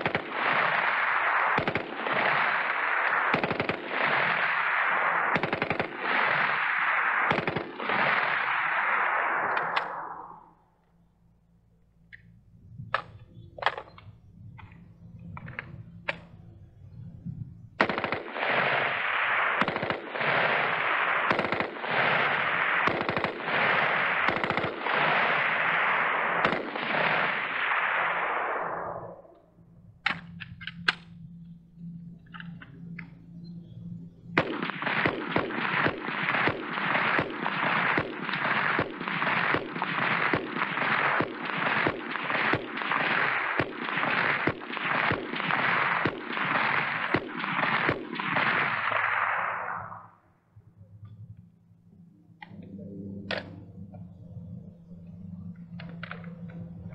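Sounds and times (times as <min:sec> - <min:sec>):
rifle rapid continuous fire: 0:00.0 - 0:10.5, 0:17.8 - 0:29.2, 0:34.2 - 0:50.1
rifle single shots: 0:00.0 - 0:10.5, 0:17.8 - 0:29.2, 0:34.4 - 0:50.0
low hum: 0:00.0 - 0:56.9.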